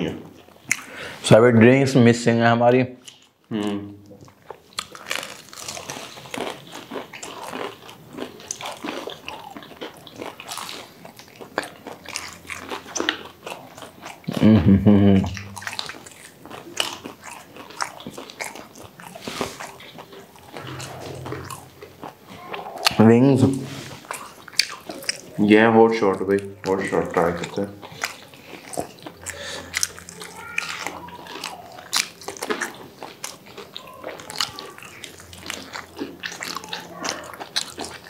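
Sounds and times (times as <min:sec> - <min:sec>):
wet chewing: 0:00.3 - 0:01.0, 0:03.0 - 0:14.4, 0:15.3 - 0:38.0
crunching bites of fried chicken: 0:04.4 - 0:14.4, 0:27.2 - 0:38.0.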